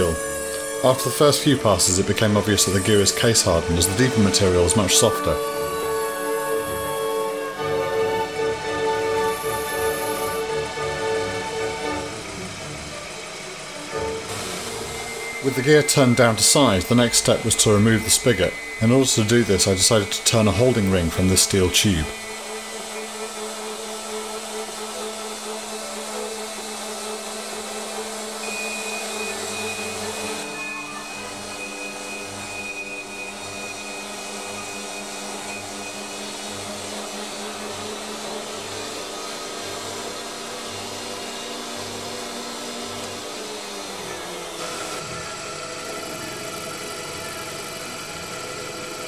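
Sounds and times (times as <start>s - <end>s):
faint orchestral music: 0.0s - 23.3s
band saw cutting steel tube: 0.0s - 49.0s
small lathe running: 0.0s - 49.0s.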